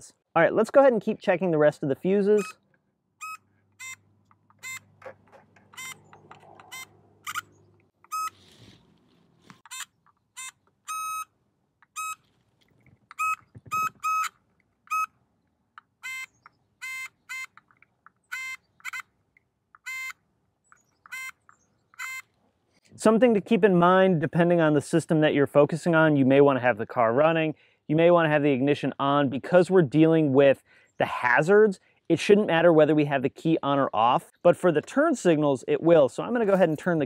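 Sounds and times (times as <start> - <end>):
circuit tester beeping: 3.2 - 4.0, 4.6 - 4.9, 5.8 - 8.4, 9.7 - 11.3, 11.9 - 12.2, 13.2 - 14.3.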